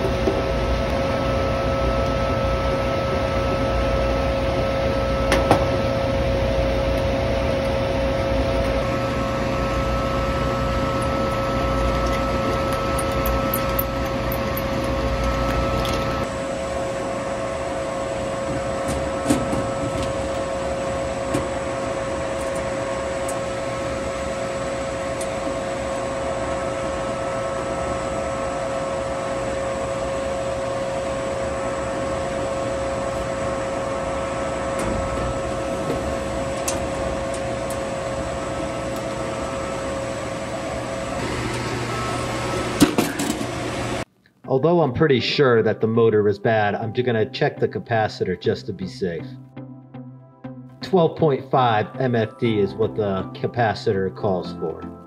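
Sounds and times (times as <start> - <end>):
fans humming and whining: 0.0 - 49.4, 50.8 - 55.0.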